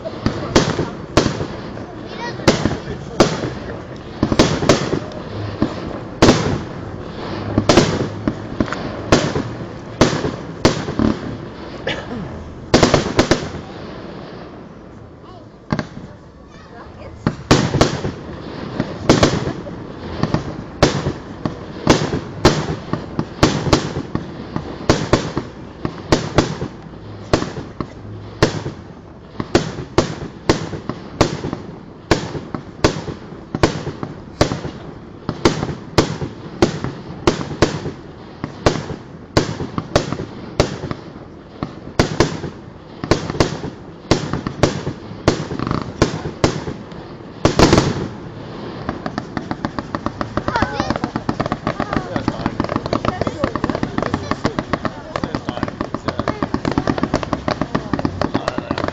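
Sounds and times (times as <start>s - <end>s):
fireworks bursting with rumbling tails: 0.0s - 58.9s.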